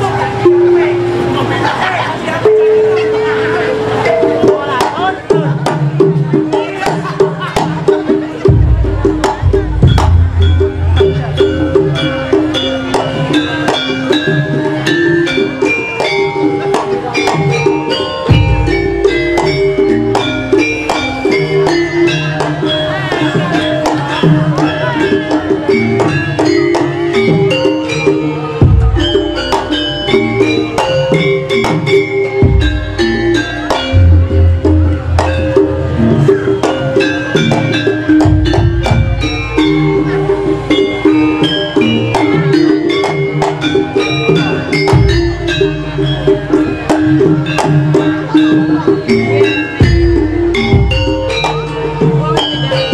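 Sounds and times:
drum strokes: 0:00.0 - 0:52.9
gamelan music: 0:00.0 - 0:52.9
ringing metal notes: 0:00.0 - 0:52.9
wavering melodic line: 0:00.0 - 0:52.9.

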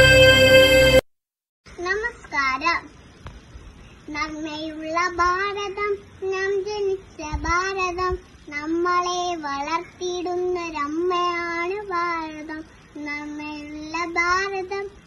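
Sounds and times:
child singing: 0:04.1 - 0:15.0.

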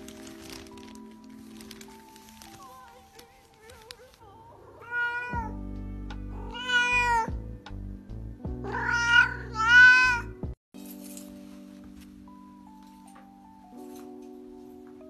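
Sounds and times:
cat meowing loudly: 0:04.8 - 0:05.6, 0:06.4 - 0:07.3, 0:08.7 - 0:10.3.

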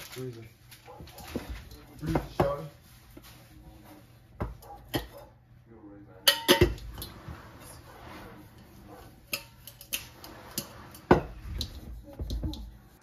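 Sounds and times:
containers knocking and clinking: 0:06.2 - 0:07.1.

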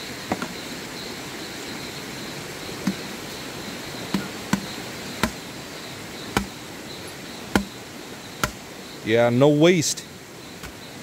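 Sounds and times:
insects chirping: 0:00.0 - 0:11.0
sharp knocks: 0:04.1 - 0:05.4, 0:06.4 - 0:06.6, 0:07.5 - 0:07.8, 0:08.4 - 0:08.6.

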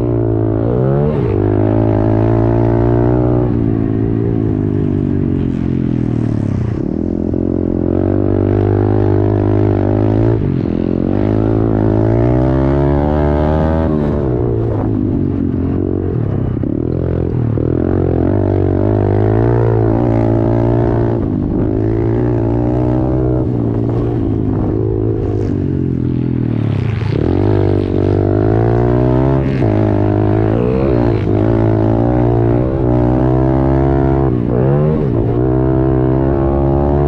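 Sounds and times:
small motorcycle engine revving: 0:18.1 - 0:37.0.

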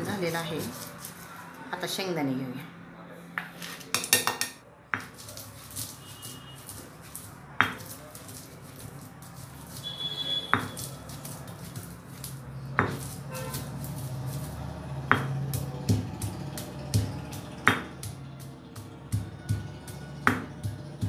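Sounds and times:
peanuts crackling being crushed: 0:00.0 - 0:01.6, 0:05.0 - 0:21.0
stone pestle knocking in mortar: 0:03.4 - 0:05.9, 0:07.6 - 0:08.5, 0:09.3 - 0:21.0.

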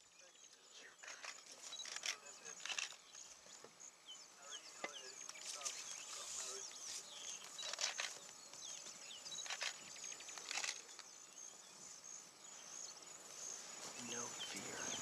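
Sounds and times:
birds chirping: 0:00.0 - 0:15.0
high insect trill: 0:00.0 - 0:15.0
rustling noises: 0:01.0 - 0:03.7, 0:05.2 - 0:11.1.

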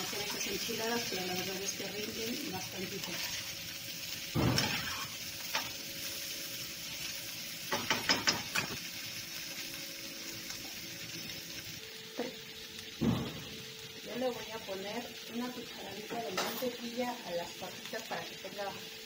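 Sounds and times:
potatoes sizzling in oil: 0:00.0 - 0:19.0
metal spoon knocking pan: 0:07.7 - 0:08.7.

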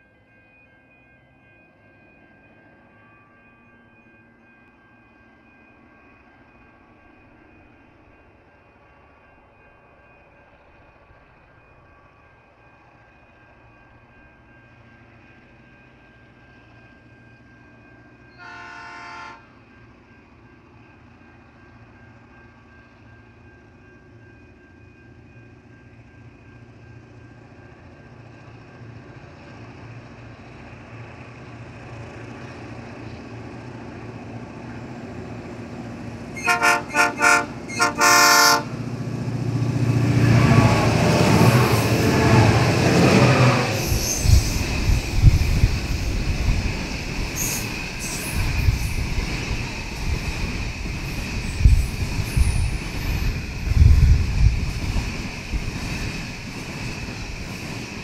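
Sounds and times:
diesel locomotive engines: 0:00.0 - 0:58.0
locomotive horn blasts: 0:18.4 - 0:19.5, 0:36.4 - 0:38.8.

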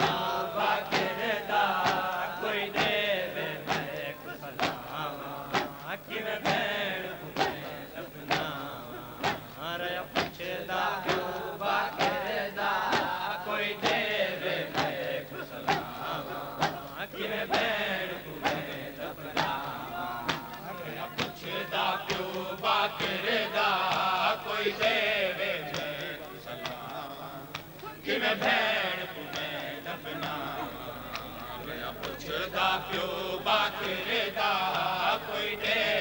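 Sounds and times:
men chanting together: 0:00.0 - 0:36.0
hands slapping chests: 0:09.2 - 0:09.6, 0:10.2 - 0:10.4, 0:11.9 - 0:12.3, 0:12.9 - 0:13.2, 0:19.4 - 0:21.5.

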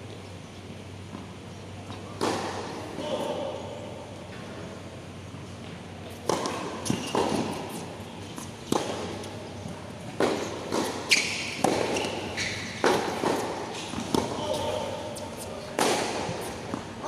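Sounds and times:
racket striking tennis ball: 0:01.9 - 0:02.8, 0:06.2 - 0:09.4, 0:10.2 - 0:17.0
shoes squeaking on court: 0:05.5 - 0:17.0
ball bouncing on hard court: 0:10.2 - 0:14.8.

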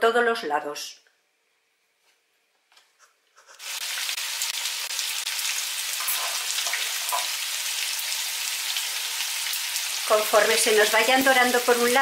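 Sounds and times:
meat sizzling in oil: 0:03.6 - 0:12.0.

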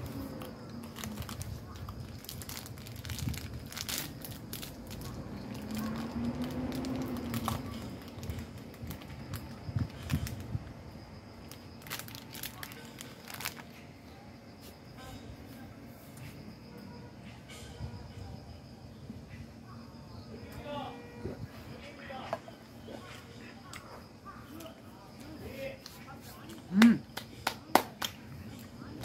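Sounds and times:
plastic wrapper crinkling: 0:00.7 - 0:10.5, 0:11.4 - 0:13.8.

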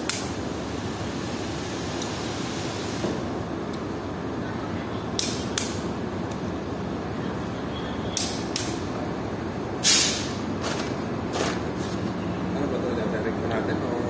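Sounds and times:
workshop background noise: 0:00.0 - 0:14.0
wrench clicking on bolts: 0:08.2 - 0:08.8.

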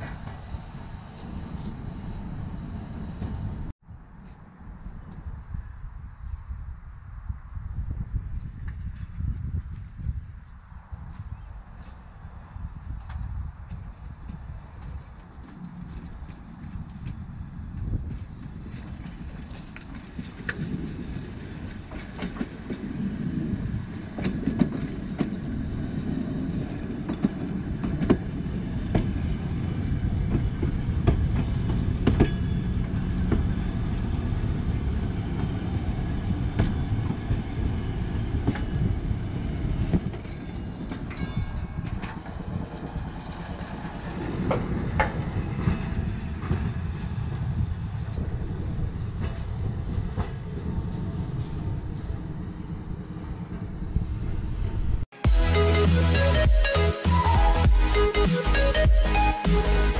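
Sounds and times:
streetcar motors and wheels rumbling: 0:00.0 - 0:59.9
wheels clicking over rail joints: 0:08.4 - 0:54.4.

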